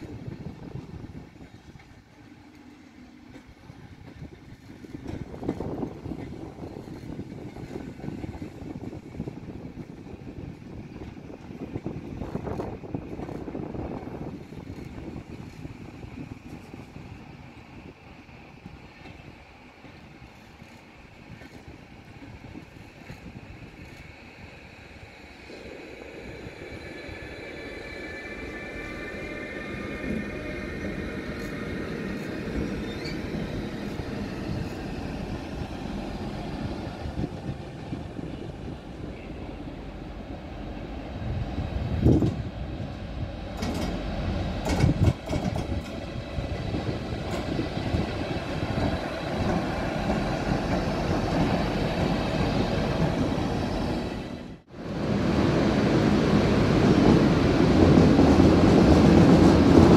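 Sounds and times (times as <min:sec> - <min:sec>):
train wheels rolling on tracks: 0:00.0 - 0:59.9
wheels knocking on rail joints: 0:43.6 - 0:48.1.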